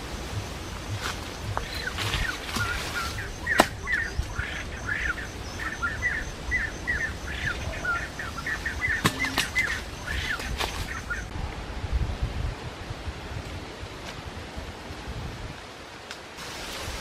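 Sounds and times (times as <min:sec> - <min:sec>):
bird chirping: 0:00.0 - 0:11.3.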